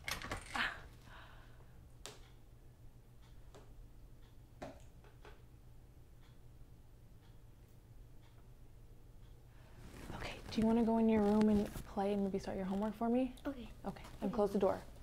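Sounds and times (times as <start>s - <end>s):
steady low hum: 0.0s - 15.0s
faint clicks and knocks: 7.1s - 8.6s.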